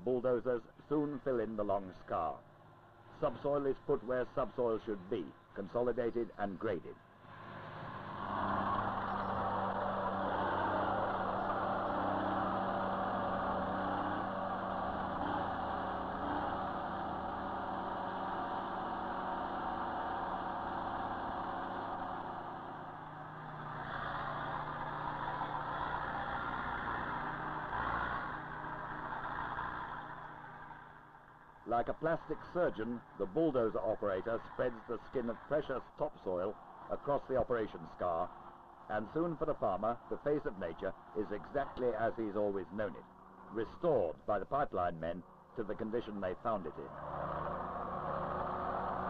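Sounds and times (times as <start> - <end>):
heavy machinery engines running: 7.0 - 43.9.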